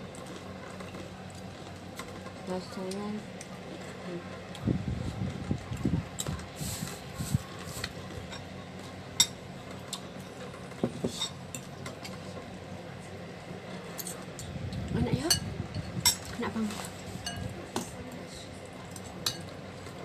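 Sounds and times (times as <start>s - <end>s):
cutlery clinking on a bowl: 15.3s - 18.0s, 18.9s - 19.9s.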